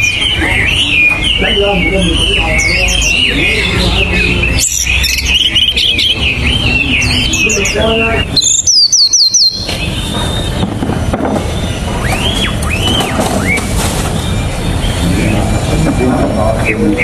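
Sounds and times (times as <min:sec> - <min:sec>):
bird singing whistled phrases: 0:00.0 - 0:10.7, 0:11.6 - 0:17.0.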